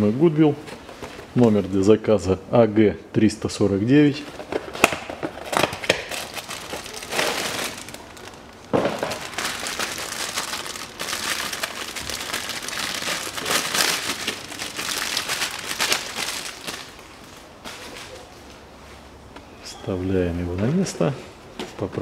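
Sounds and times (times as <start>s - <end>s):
plastic wrap crinkling: 4.1s - 18.5s.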